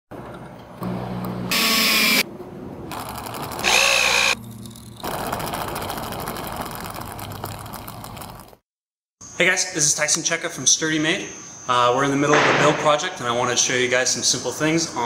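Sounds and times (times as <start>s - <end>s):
power drill driving screws: 1.5s - 2.2s, 3.6s - 4.4s.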